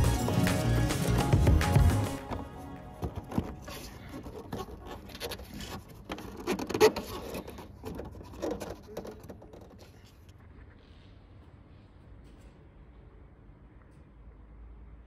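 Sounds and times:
hands scraping and rubbing rubber: 0.0 - 11.1.

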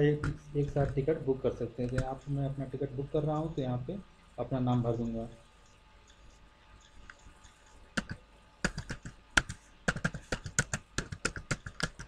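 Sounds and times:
keyboard key clicks: 8.0 - 12.0.

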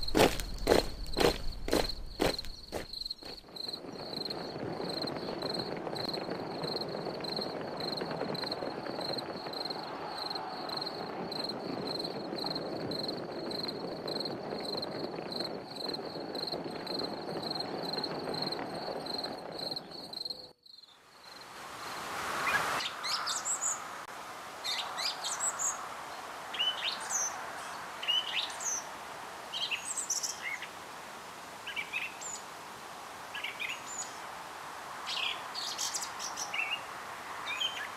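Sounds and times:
insect chirping: 0.0 - 8.0, 9.0 - 24.0
rush of noise: 21.2 - 28.1.

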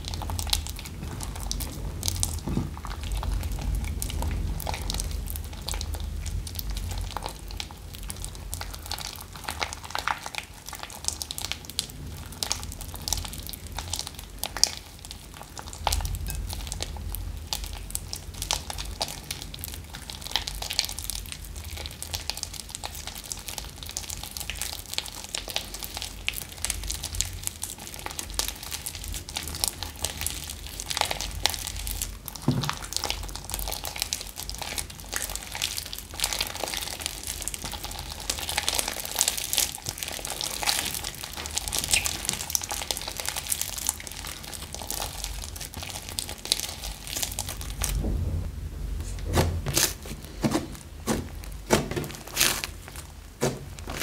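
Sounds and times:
slime squelching and crackling: 0.0 - 48.1, 49.0 - 54.0.

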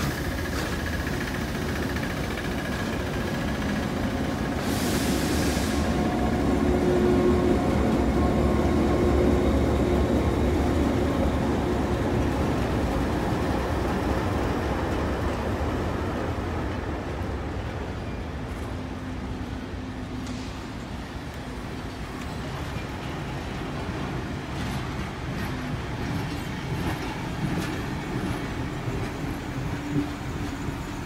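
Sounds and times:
locomotive engine drone: 0.0 - 31.0
brief hiss: 4.6 - 6.0.

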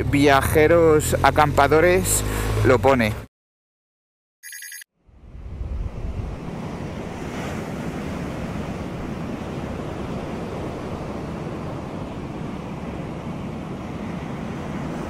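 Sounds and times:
wind on microphone: 5.1 - 15.0
surf breaking on beach: 5.6 - 15.0.

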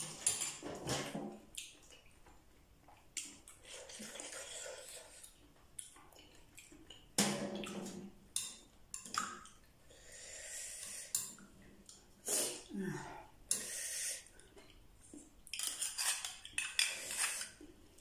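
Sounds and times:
wet eating sounds: 1.4 - 8.0
metal spoon scraping glass bowl: 15.6 - 17.6.

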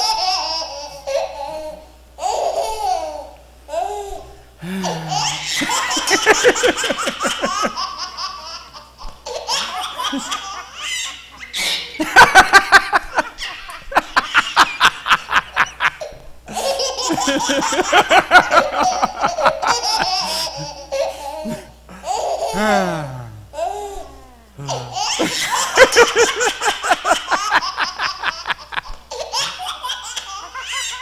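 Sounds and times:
puppet character laughing: 4.7 - 8.8, 9.4 - 22.8, 24.6 - 31.0.

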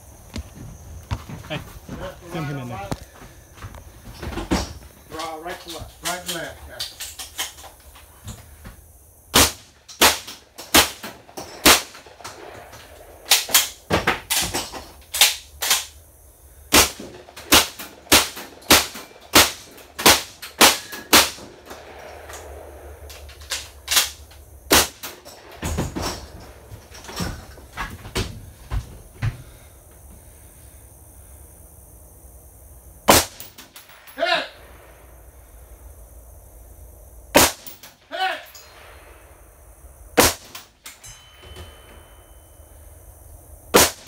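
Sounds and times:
gunshots: 9.3 - 14.6, 16.7 - 26.7, 33.0 - 35.0, 37.3 - 39.2, 40.2 - 40.7, 43.7 - 44.0.

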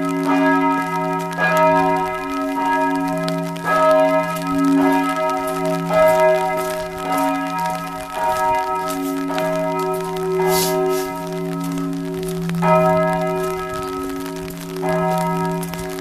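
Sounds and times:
church bells ringing: 0.0 - 16.0.

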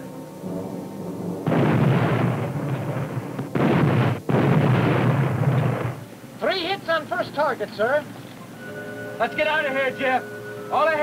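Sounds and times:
deep torpedo explosions: 0.4 - 6.1.

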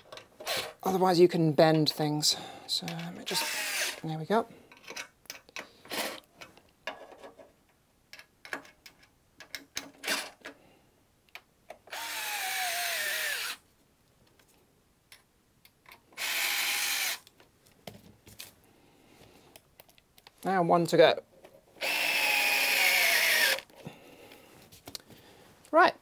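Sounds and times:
electric screwdriver motor whine: 3.3 - 4.0, 11.9 - 13.6, 16.2 - 17.2, 21.8 - 23.6.

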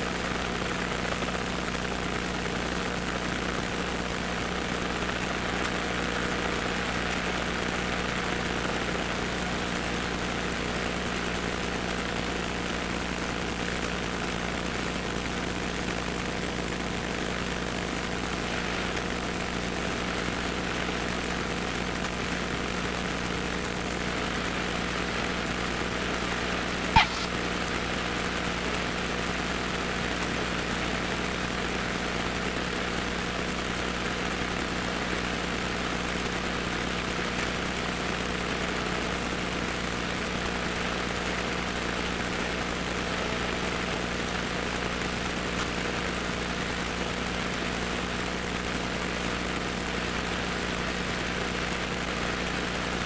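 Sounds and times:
sharp click: 27.0 - 27.3.

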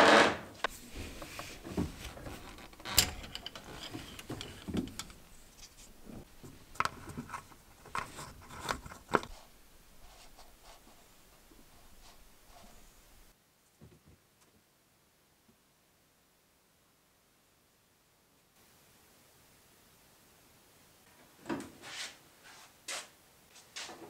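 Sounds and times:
clicks knocks and scrapes of handling: 0.6 - 9.5.

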